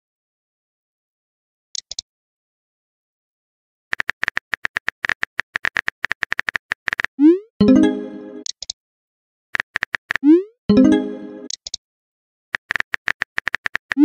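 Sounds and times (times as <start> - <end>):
virtual keyboard typing clicks: 3.9 - 7.1, 8.4 - 8.8, 9.6 - 10.8, 11.4 - 11.8, 12.6 - 14.0.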